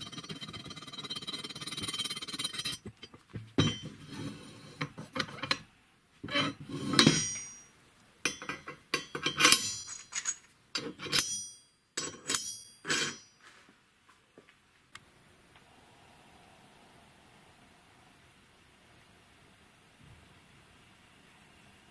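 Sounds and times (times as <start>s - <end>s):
steel parts clanking: 6.3s - 7.7s, 8.3s - 13.4s.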